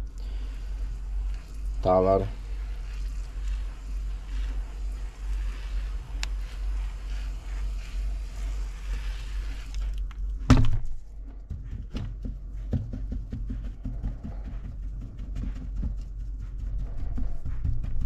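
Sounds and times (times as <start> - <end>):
pressure sprayer hissing: 0.0 - 10.3
hand patting wet soil: 0.2 - 18.0.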